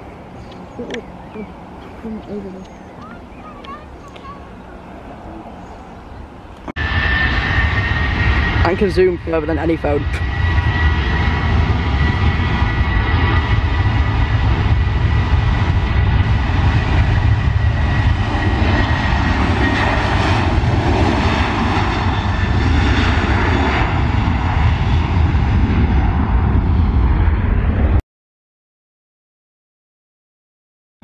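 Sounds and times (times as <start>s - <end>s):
jet engine high whine: 0.0s - 28.0s
jet engines rumbling: 0.0s - 28.0s.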